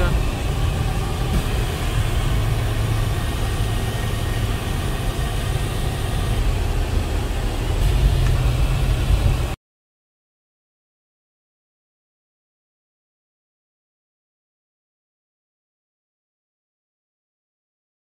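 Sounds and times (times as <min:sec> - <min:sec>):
low engine rumble: 0:00.0 - 0:09.6
road rumble: 0:00.0 - 0:09.6
wind noise: 0:00.0 - 0:09.6.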